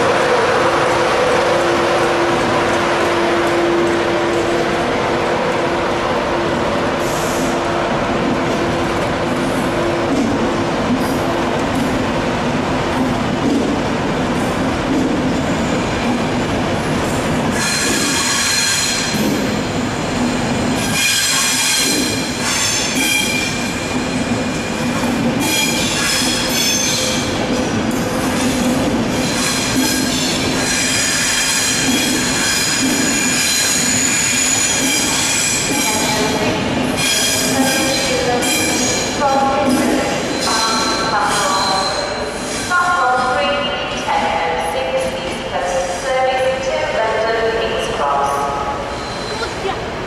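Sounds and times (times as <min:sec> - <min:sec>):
train rumble: 0:00.0 - 0:50.0
train wheels squealing: 0:17.6 - 0:19.2, 0:20.8 - 0:27.3, 0:29.2 - 0:36.2, 0:37.0 - 0:39.2, 0:40.2 - 0:42.7, 0:48.9 - 0:49.6.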